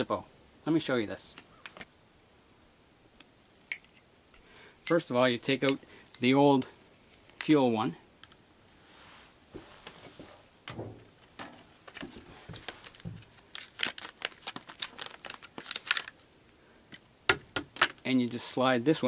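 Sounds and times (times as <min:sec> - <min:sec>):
plastic blister pack crinkling: 0:11.1 - 0:16.6, 0:17.3 - 0:18.1.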